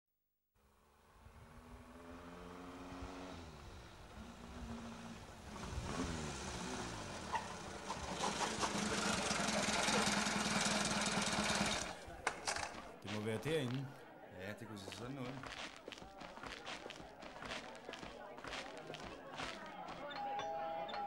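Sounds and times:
engine revving: 0.8s - 12.8s.

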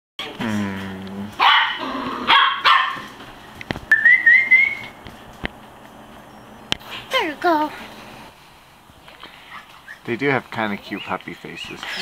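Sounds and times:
dogs barking: 1.4s - 3.2s.

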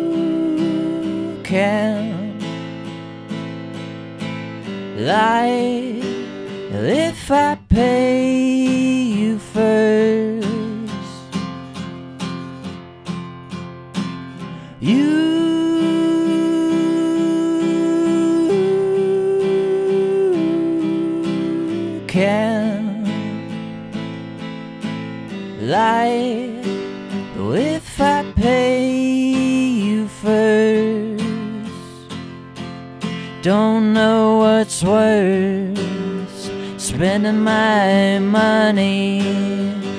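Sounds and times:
man singing wordless notes: 0.0s - 2.7s, 4.9s - 11.4s, 14.6s - 23.6s, 25.6s - 32.1s, 33.2s - 39.9s
acoustic guitar strumming: 0.0s - 39.9s.

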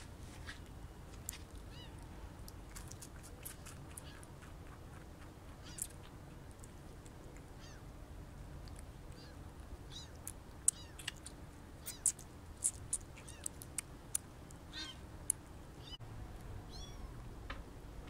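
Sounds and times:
kitten mewing: 2.8s - 6.2s, 9.2s - 13.8s, 14.7s - 15.0s, 16.7s - 17.1s.

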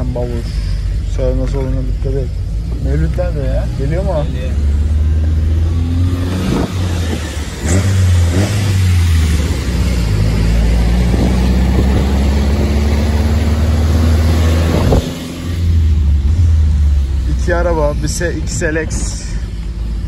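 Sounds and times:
car engine under throttle: 0.0s - 20.0s
exhaust cracks: 0.0s - 20.0s.

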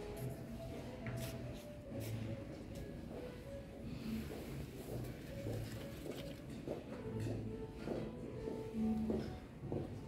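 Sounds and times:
quiet background music: 0.0s - 10.0s.

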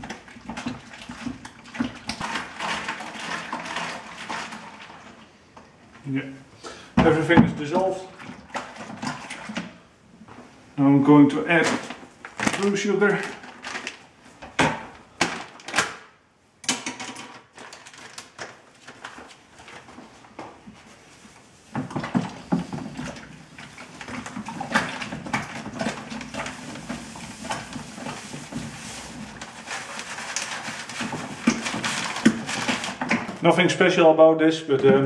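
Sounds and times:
plastic bag crinkling: 11.5s - 14.2s, 15.1s - 16.0s, 17.3s - 20.3s, 23.7s - 33.9s.

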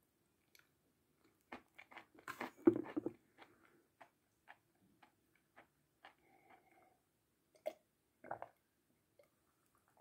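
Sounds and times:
chewing crunches: 1.4s - 6.8s.

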